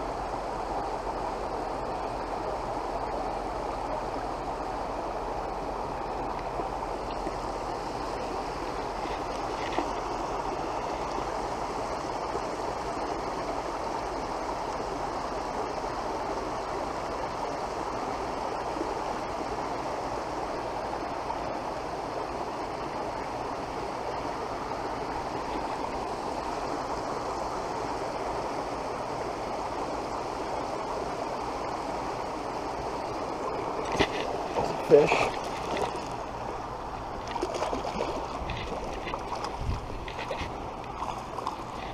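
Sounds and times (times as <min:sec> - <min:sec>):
waterfall splashing into pond: 0:23.4 - 0:41.8.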